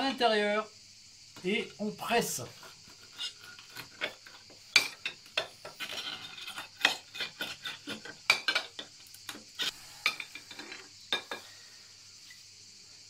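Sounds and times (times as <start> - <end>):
glass grinding nuts in jar: 5.7 - 8.9.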